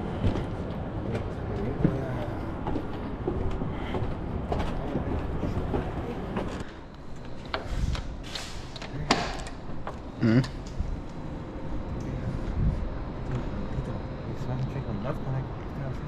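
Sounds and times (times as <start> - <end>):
steady low rumble: 8.9 - 16.0.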